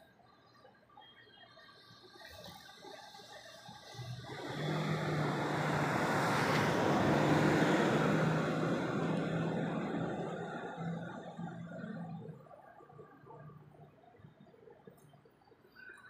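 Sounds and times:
motor vehicle driving past: 4.2s - 12.6s.

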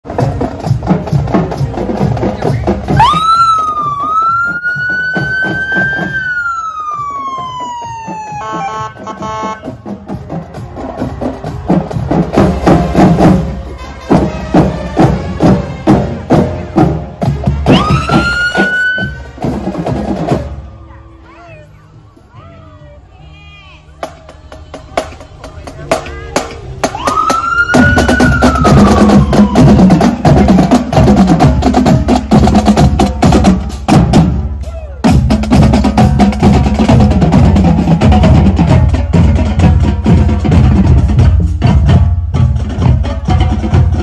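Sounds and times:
drumline playing snare and bass drums: 0.1s - 20.7s, 24.0s - 44.0s
police siren wailing: 2.9s - 9.6s, 17.7s - 19.3s, 26.9s - 30.5s
buzzy horn tone: 8.4s - 9.7s.

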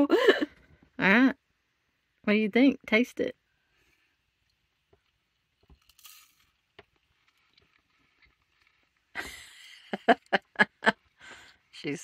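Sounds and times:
quiet chewing with small clicks: 3.6s - 9.2s.

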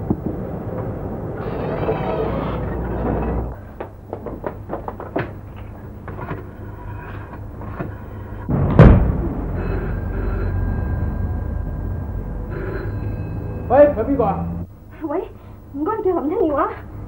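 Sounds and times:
loud thud: 8.5s - 10.1s.

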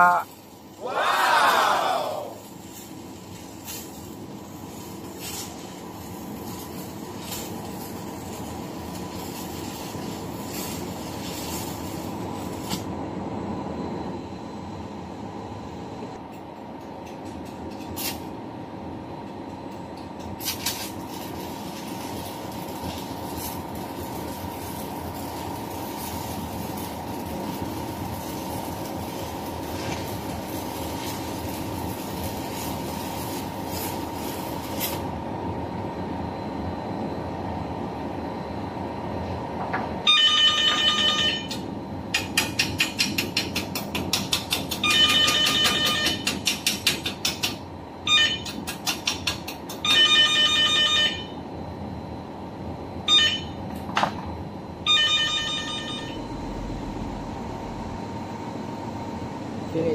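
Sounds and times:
arc welding crackling and hissing: 0.0s - 13.0s, 16.2s - 18.5s, 19.2s - 36.3s, 41.5s - 50.0s
low machinery hum: 0.0s - 59.9s.

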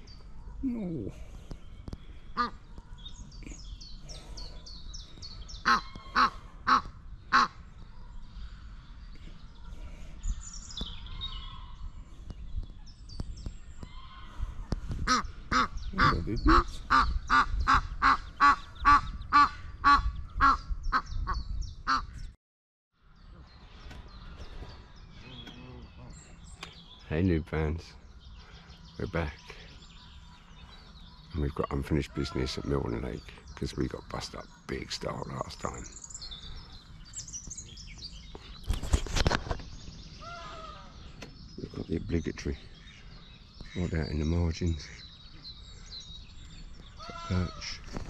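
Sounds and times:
geese honking: 2.4s - 2.6s, 5.6s - 7.6s, 15.0s - 21.1s.

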